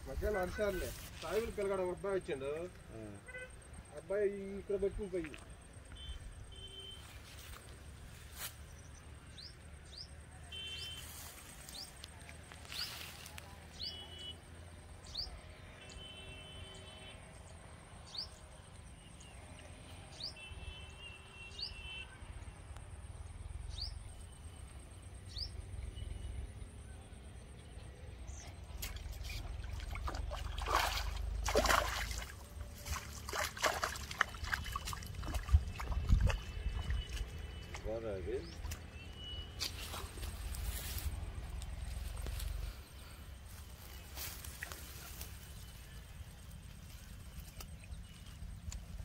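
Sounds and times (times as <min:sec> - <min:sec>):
splashy trickling water: 0:28.7 - 0:38.9.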